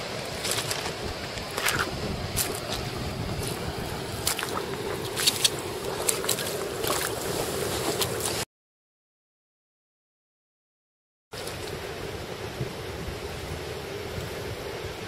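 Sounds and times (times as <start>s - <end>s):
fish splashing in shallow water: 0.0s - 8.4s
water and wind noise: 0.0s - 8.4s, 11.3s - 15.0s.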